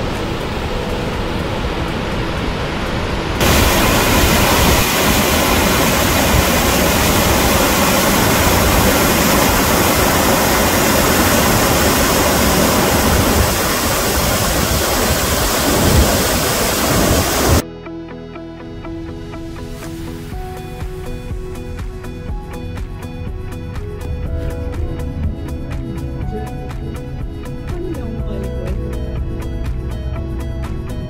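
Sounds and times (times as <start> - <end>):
fast-flowing river water rushing: 0.0 - 17.6.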